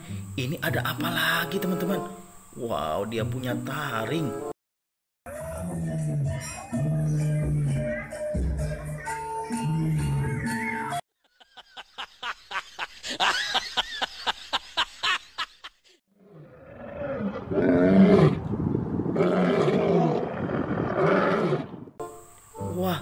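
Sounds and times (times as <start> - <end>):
lions roaring: 16.2 - 22.0.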